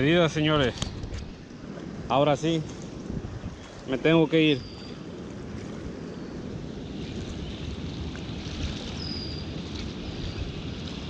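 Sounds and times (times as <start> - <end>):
river flowing: 0.0 - 11.0
wind buffeting microphone: 0.0 - 11.0
faint high chirp: 4.5 - 5.0, 9.0 - 9.5.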